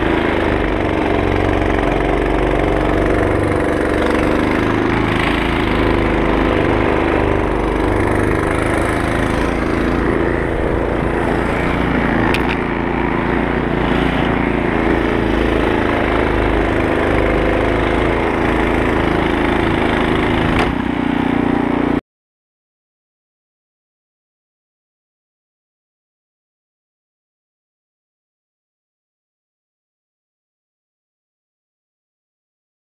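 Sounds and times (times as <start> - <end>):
snow thrower engine running: 0.0 - 22.0.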